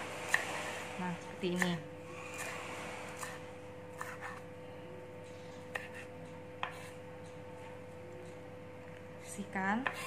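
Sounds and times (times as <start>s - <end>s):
knife tapping cutting board: 1.5s - 1.8s.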